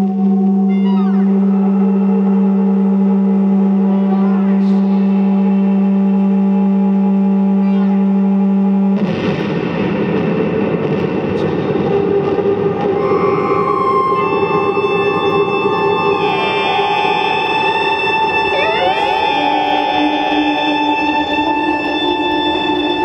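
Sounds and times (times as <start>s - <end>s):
low electronic drone: 0.0s - 23.0s
dense noisy electronic wash: 9.0s - 23.0s
rising electronic sweeps: 12.7s - 23.0s.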